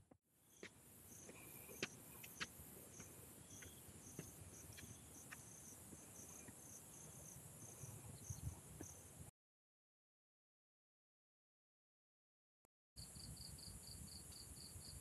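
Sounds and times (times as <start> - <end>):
insect chorus: 0.4 - 9.2, 13.0 - 15.0.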